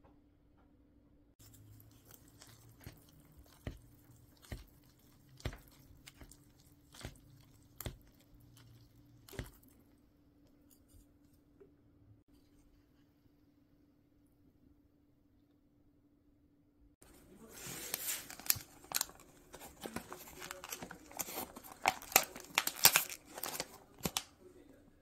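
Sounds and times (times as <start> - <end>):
chopsticks tapping paper cup: 1.4 - 9.7
chopsticks stirring noodles: 1.4 - 9.9.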